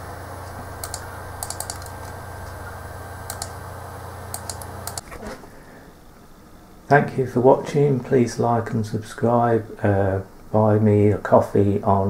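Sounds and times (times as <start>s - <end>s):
steady low hum: 0.0s - 12.0s
computer keyboard keys clicking: 0.8s - 2.6s, 3.3s - 3.6s, 4.3s - 5.0s.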